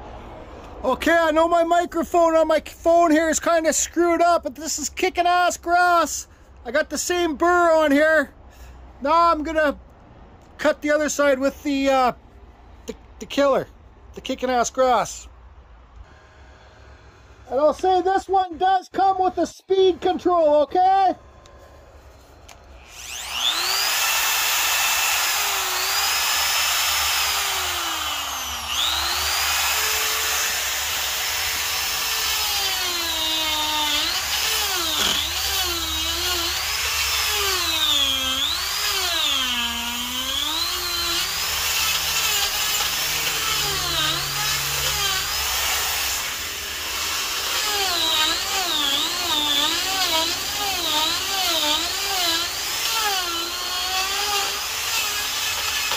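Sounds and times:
die grinder carving wood: 22.8s - 55.9s.

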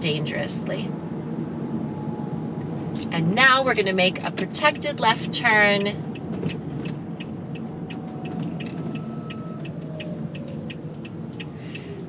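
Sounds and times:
car road and engine rumble: 0.0s - 12.0s
turn signal ticking: 4.0s - 12.0s.

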